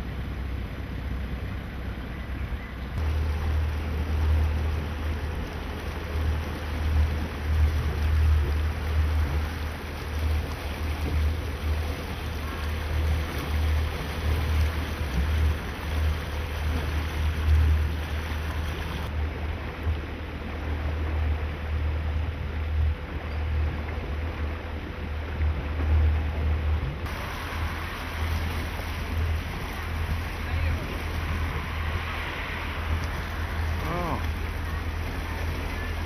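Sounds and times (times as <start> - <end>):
motorboat engine running: 0.0 - 36.0
water rushing past hull: 0.0 - 36.0.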